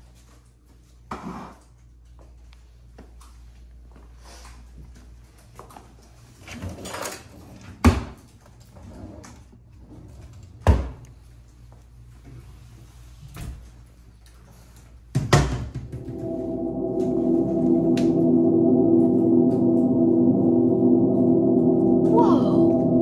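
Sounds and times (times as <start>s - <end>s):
ringing gong-like tone: 15.9s - 23.0s.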